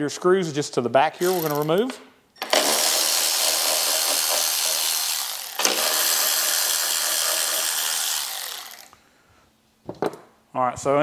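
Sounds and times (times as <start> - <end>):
electric ratchet spinning screws: 1.2 - 9.0.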